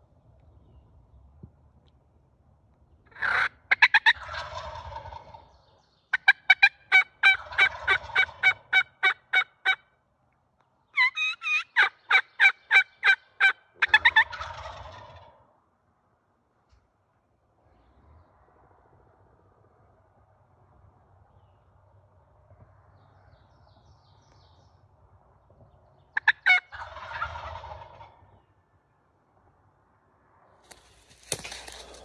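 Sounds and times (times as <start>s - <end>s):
turkey gobbling: 3.1s - 5.5s, 6.1s - 9.8s, 11.0s - 15.5s, 26.2s - 28.4s
turkey yelps: 3.1s - 5.5s, 6.1s - 9.8s, 11.0s - 15.4s, 26.2s - 28.2s.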